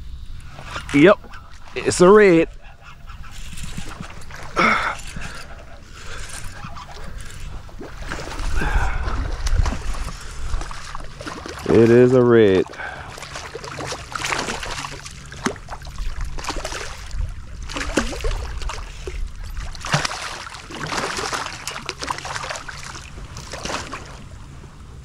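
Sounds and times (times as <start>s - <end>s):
wind rumble on microphone: 0.0s - 12.4s, 14.6s - 20.0s
water splashing around kayak: 0.4s - 25.0s.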